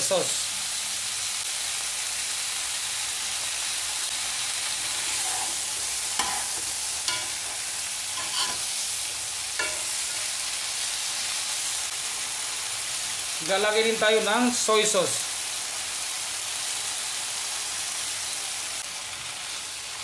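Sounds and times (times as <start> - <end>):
vegetables sizzling in oil: 0.0 - 20.0
utensils clinking against pan: 4.9 - 8.8, 9.6 - 10.3.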